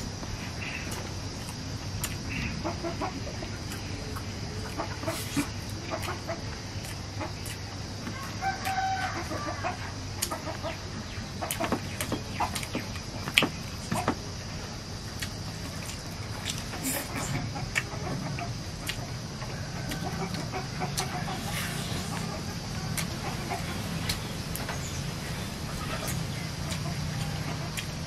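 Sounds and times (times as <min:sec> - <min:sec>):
chickens clucking: 0:00.6 - 0:28.0
person chewing and lip smacking: 0:00.9 - 0:02.2, 0:03.6 - 0:06.2, 0:06.8 - 0:07.7, 0:11.5 - 0:14.0, 0:15.2 - 0:18.0, 0:18.8 - 0:19.1, 0:19.9 - 0:23.4, 0:26.0 - 0:28.0
rooster crowing: 0:08.1 - 0:09.9, 0:19.4 - 0:27.8.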